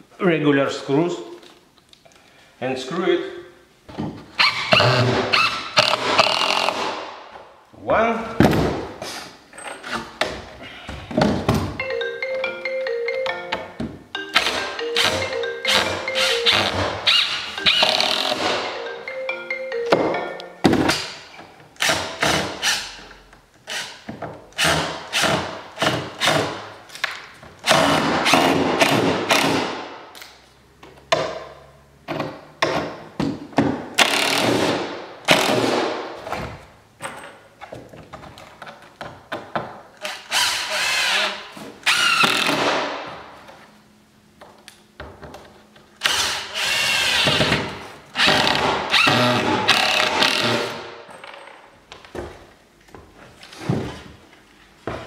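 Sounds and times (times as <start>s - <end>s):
impact driver driving screws: 4.4s - 7.1s, 14.4s - 18.6s, 21.8s - 23.1s, 27.6s - 29.8s, 34.0s - 35.9s, 40.0s - 42.9s, 46.0s - 50.8s.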